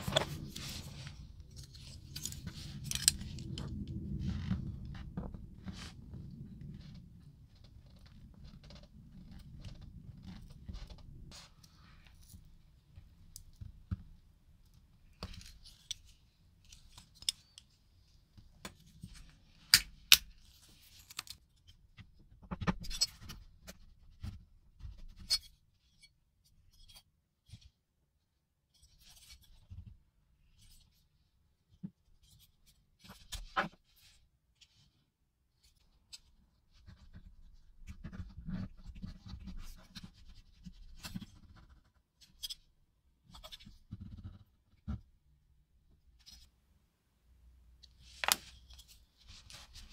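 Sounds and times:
small parts and tools clicking: 1.5 - 3.7, 15.2 - 17.7, 19.7 - 21.4.

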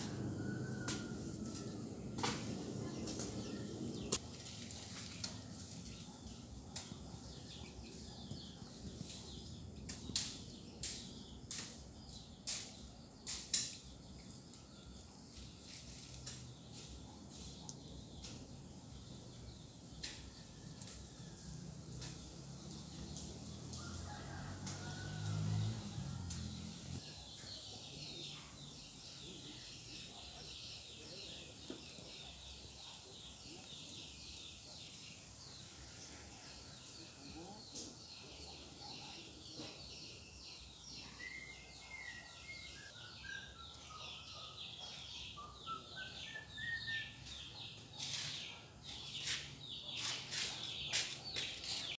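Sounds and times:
small birds chirping: 26.3 - 52.0.

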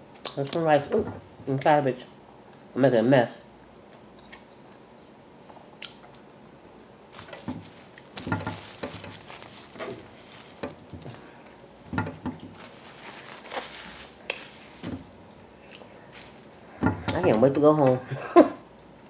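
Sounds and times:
napkin rustling: 7.1 - 11.3, 11.9 - 15.2, 16.0 - 16.5.

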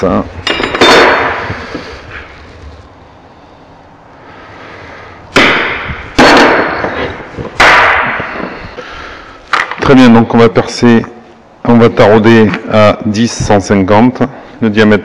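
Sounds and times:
loud metallic clank: 0.4 - 1.6, 5.4 - 8.5.

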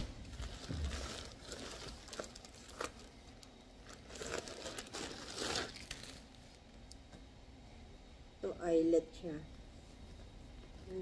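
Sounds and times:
plastic bag crinkling: 0.0 - 6.6.

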